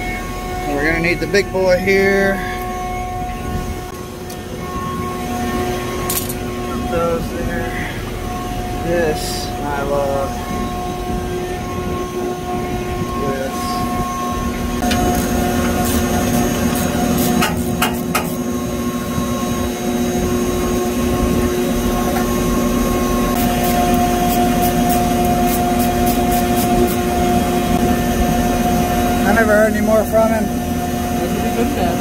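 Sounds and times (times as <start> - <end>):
steady mechanical hum: 0.0 - 32.0
metal tools clinking: 6.0 - 6.4.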